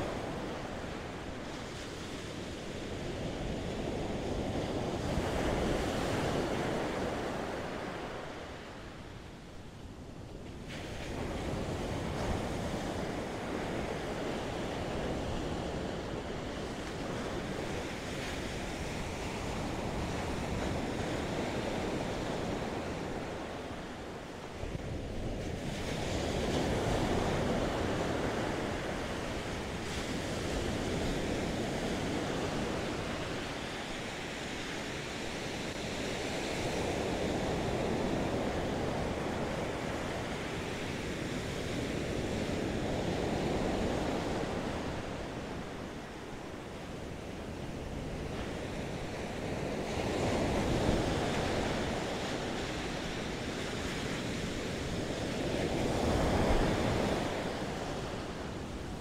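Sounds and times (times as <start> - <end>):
wind on microphone: 0.0 - 59.0
ocean surf breaking: 48.2 - 59.0.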